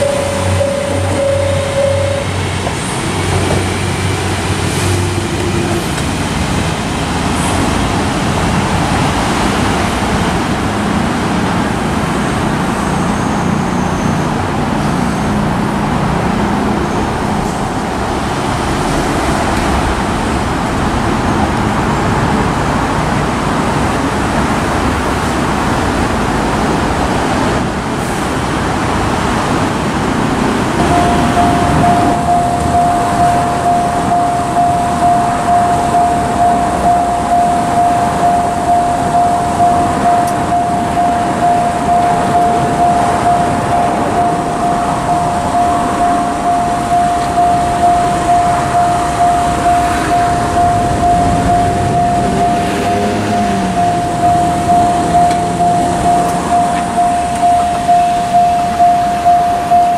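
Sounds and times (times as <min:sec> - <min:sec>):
train running down the line: 0:00.0 - 0:59.9
low engine hum: 0:30.8 - 0:59.9.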